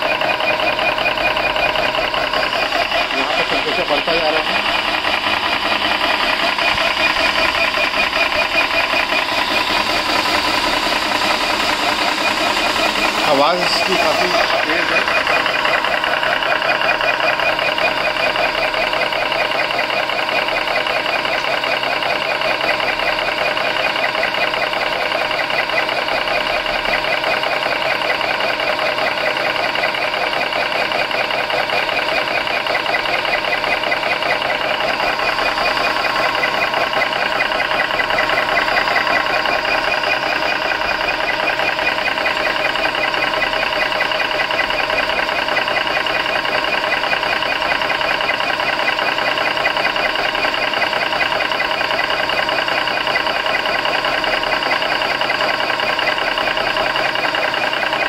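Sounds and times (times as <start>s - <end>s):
air compressor pump pulsing: 0.0s - 58.0s
cooling fan: 0.0s - 58.0s.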